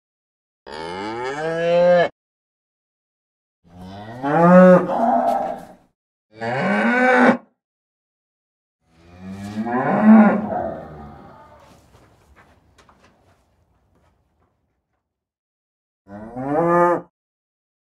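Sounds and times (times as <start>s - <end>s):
cows mooing: 0.7s - 2.1s, 3.7s - 5.7s, 6.4s - 7.4s, 8.9s - 12.2s.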